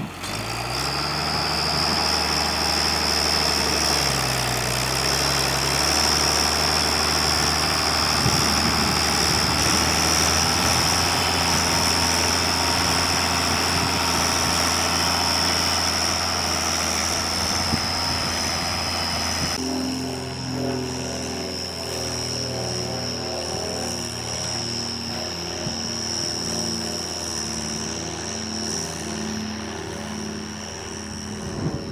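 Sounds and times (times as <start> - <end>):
high whine: 0.0 - 31.9
tractor diesel engine: 0.0 - 31.9.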